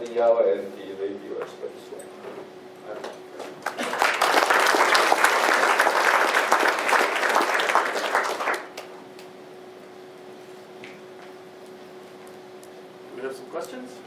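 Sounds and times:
audience applauding: 3.6 - 8.9.

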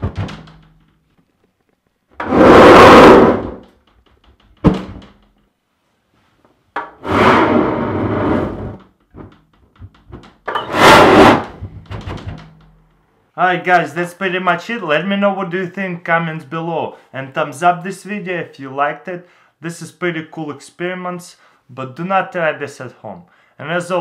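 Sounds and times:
flame igniting with a whoosh: 2.3 - 3.5.

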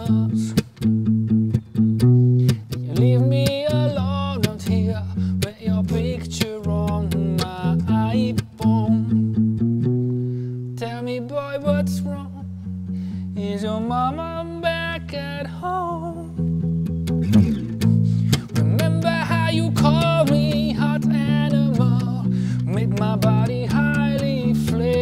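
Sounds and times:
man singing: 0.0 - 0.7, 2.7 - 9.2, 10.8 - 12.5, 13.3 - 16.4, 18.3 - 25.0
plucked acoustic bass guitar: 0.0 - 25.0.

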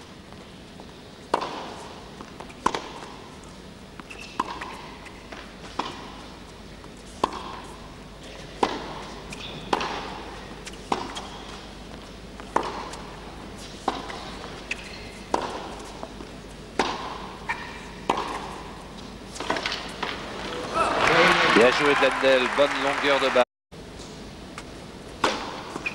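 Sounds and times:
racquets striking tennis ball: 1.3 - 3.3, 3.9 - 6.4, 7.0 - 20.5, 25.2 - 25.9
ball bouncing: 4.0 - 6.1, 13.8 - 15.8, 16.8 - 18.6.

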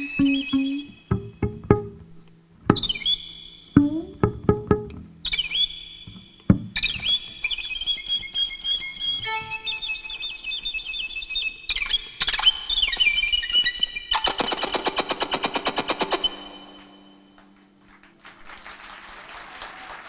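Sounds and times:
solo violin playing: 0.0 - 3.0, 3.8 - 5.0, 8.6 - 10.6
audience applause: 17.4 - 20.0.

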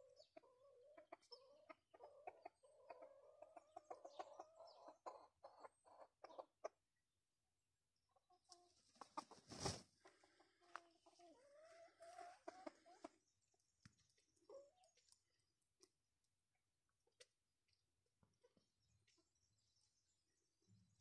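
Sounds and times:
chicken clucking: 0.0 - 6.9, 8.1 - 15.4.

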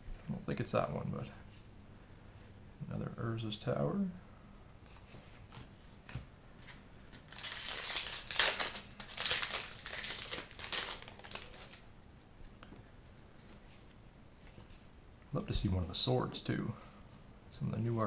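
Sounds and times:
foil wrapper crinkling and tearing: 7.1 - 11.8.

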